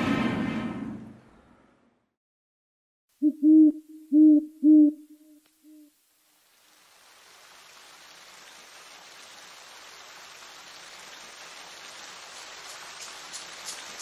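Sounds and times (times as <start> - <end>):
rushing hiss of water: 5.6 - 14.0.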